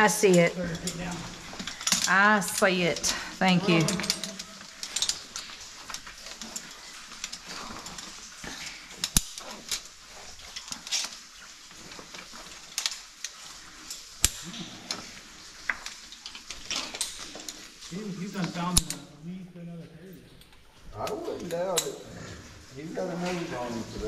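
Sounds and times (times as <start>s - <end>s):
climbing gear clicking on rock: 0.2s - 3.4s, 4.0s - 19.2s.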